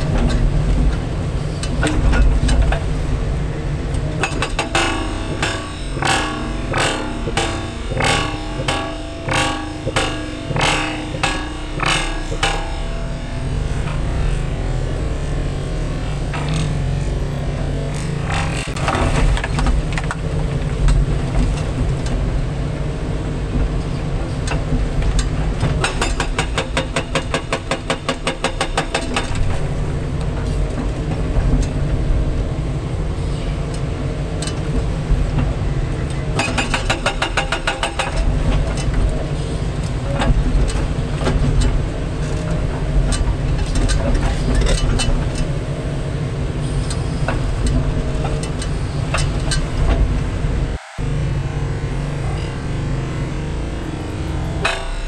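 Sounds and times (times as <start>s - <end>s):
excavator diesel engine running: 0.0s - 55.0s
hydraulic hammer breaking concrete: 4.2s - 14.0s, 25.6s - 29.6s, 36.4s - 45.5s.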